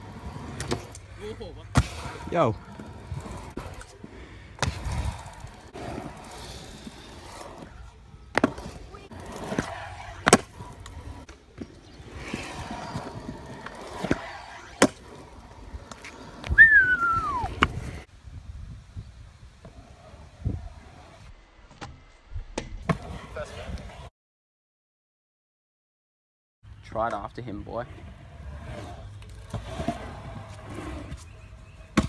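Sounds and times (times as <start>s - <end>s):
scooter wheels rolling on concrete: 0.0s - 24.1s, 26.7s - 32.0s
falling whistle-like squeal: 16.5s - 17.5s.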